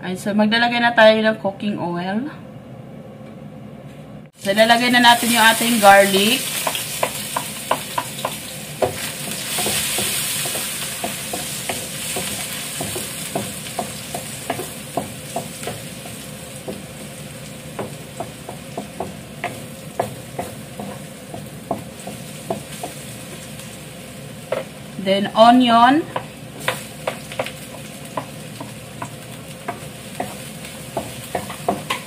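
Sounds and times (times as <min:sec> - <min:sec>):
garlic sizzling in oil: 0:04.4 - 0:32.0.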